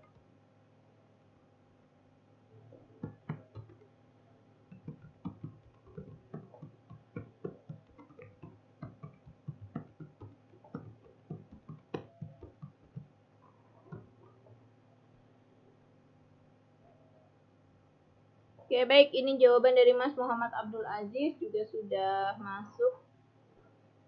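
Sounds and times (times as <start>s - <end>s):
typing on keyboard: 3.0s - 3.8s, 4.7s - 13.1s.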